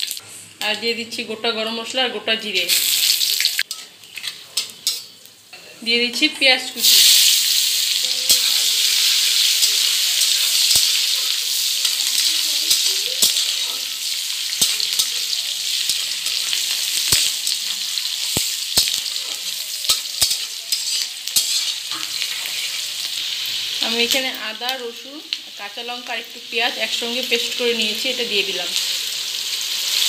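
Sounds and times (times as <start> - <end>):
onion sizzling in hot oil: 0.0 - 30.0
metal spatula clicking against pan: 19.9 - 21.7.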